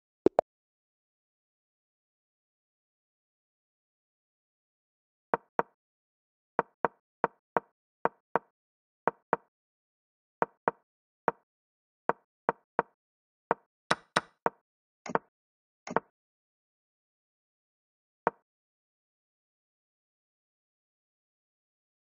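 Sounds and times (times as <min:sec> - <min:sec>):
wooden clacks of chess moves: 0:13.5 - 0:15.3.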